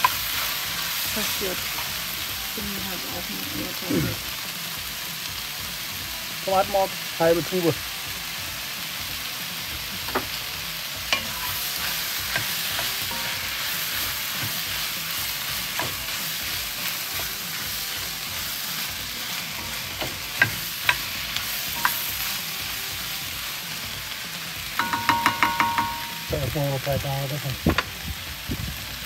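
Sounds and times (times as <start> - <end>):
vegetables sizzling in a pot: 0.0 - 29.0
spoon knocking against pot: 24.8 - 26.2.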